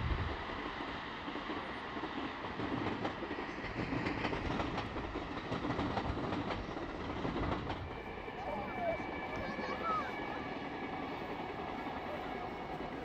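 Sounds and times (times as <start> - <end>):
train wheels on rails: 0.0 - 13.0
faint rail clicks: 1.3 - 8.0.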